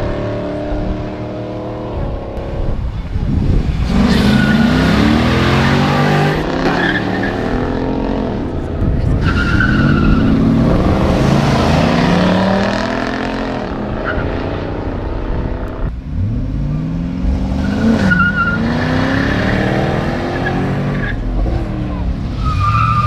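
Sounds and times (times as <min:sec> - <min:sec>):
drag car engines revving: 0:00.0 - 0:23.0
tire squeal: 0:04.0 - 0:07.8, 0:09.0 - 0:10.5, 0:13.9 - 0:14.5, 0:17.6 - 0:23.0.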